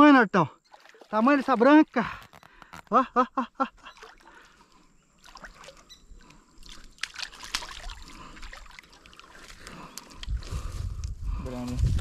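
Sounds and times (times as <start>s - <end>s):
small sharp splashes and clicks: 0.7s - 1.8s, 3.9s - 10.4s
water splashing and dripping: 0.7s - 1.8s, 3.8s - 10.2s.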